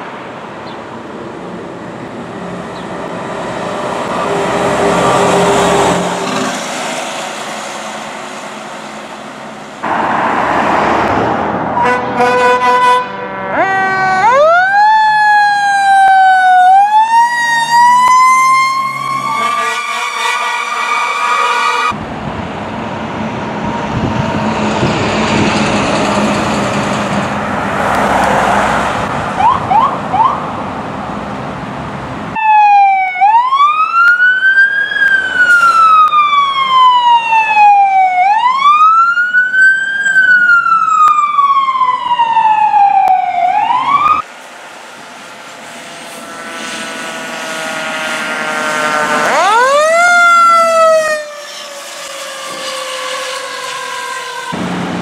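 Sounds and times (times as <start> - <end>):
engine and road noise: 0.0 - 55.0
wail siren sweeping: 3.8 - 6.5, 9.8 - 22.0, 27.6 - 30.5, 32.4 - 44.3, 46.1 - 55.0
second siren sweeping sharply: 9.8 - 22.0, 27.6 - 30.5, 32.4 - 44.3, 46.0 - 54.9.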